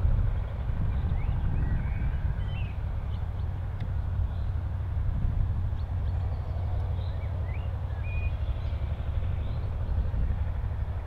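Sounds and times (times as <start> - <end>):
steady low rumble: 0.0 - 11.0
small birds chirping: 0.9 - 4.7, 5.7 - 10.2.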